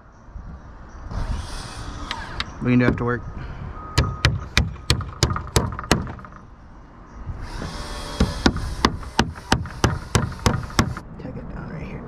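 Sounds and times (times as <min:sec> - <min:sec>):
hammer driving nails into wood: 0:04.0 - 0:06.4, 0:07.6 - 0:11.0.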